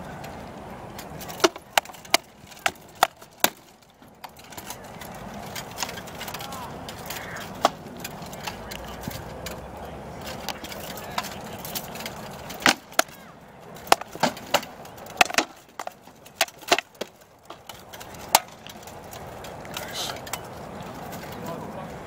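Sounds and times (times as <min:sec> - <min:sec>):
rattan swords striking shields: 0:01.3 - 0:03.7, 0:10.4 - 0:13.2, 0:13.8 - 0:18.7.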